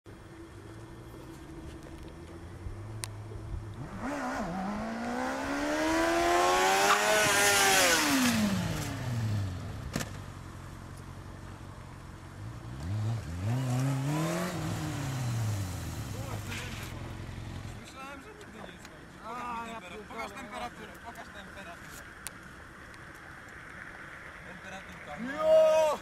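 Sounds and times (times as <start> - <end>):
motorcycle engine revving: 1.0 - 10.6, 12.3 - 17.9.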